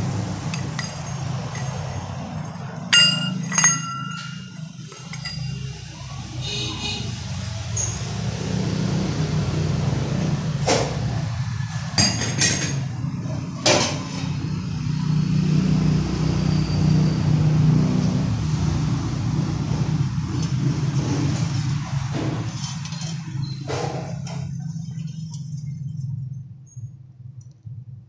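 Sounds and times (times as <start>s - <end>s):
sharp metal clanks: 0.5s - 5.7s.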